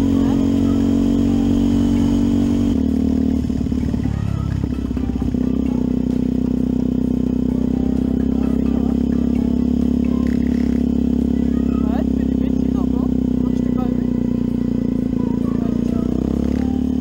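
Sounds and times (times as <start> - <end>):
motorcycle engine running: 0.0 - 17.0.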